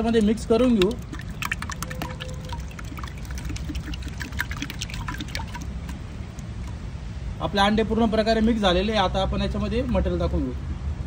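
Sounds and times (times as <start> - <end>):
fork whisking eggs: 0.0 - 6.0.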